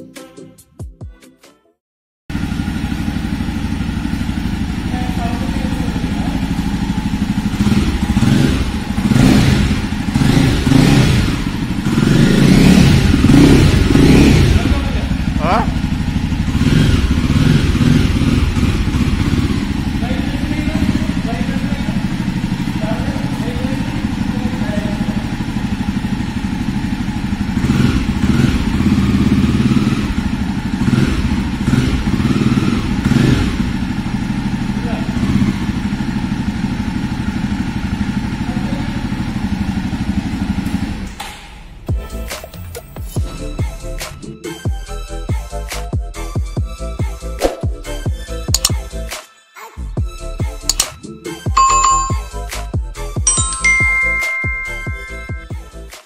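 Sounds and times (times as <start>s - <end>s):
motorcycle engine revving: 2.3s - 41.1s.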